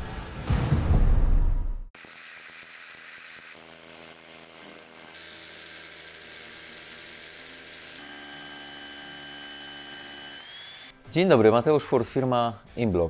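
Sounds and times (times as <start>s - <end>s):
rotary hammer drilling concrete: 2.0s - 11.0s.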